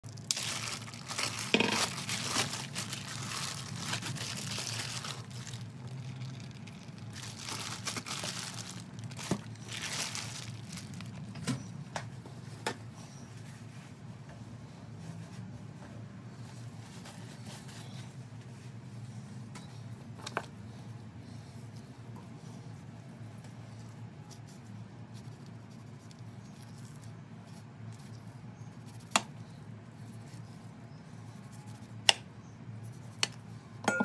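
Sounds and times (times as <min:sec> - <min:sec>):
plastic packaging crinkling and tearing: 0:00.0 - 0:11.6.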